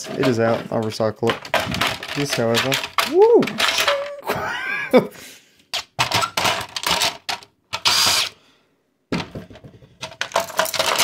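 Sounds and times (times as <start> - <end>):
plastic clicks and knocks: 0.0 - 4.1, 5.7 - 7.9
plastic scrape: 0.0 - 4.1.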